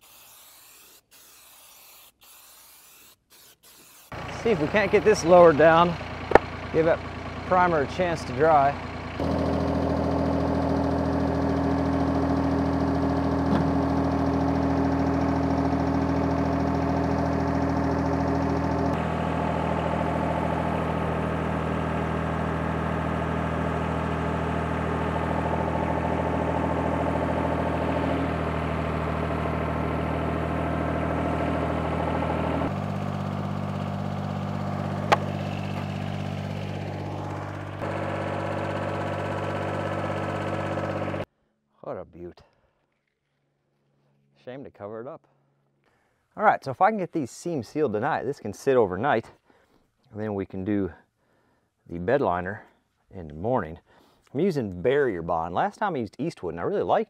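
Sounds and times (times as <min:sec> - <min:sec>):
tractor engine running: 0:04.1 - 0:41.3.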